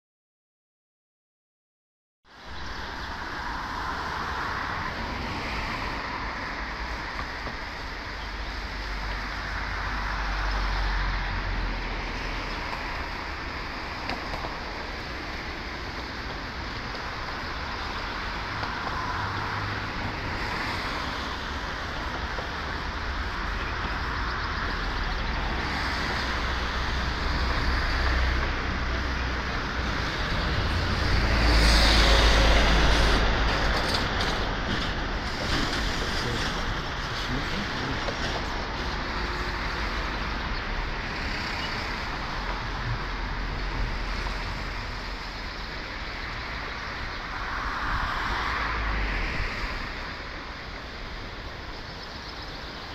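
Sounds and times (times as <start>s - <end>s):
road traffic: 2.3s - 52.9s
vehicle passing close: 25.0s - 38.2s.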